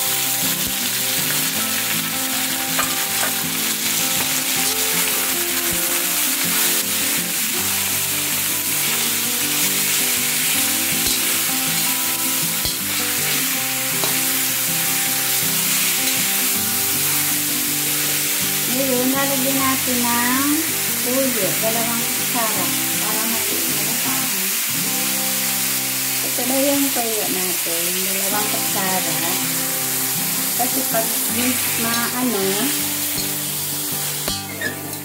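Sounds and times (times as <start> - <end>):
meat sizzling in hot oil: 0.0 - 35.0
metal spatula clicking on pan: 11.0 - 11.4.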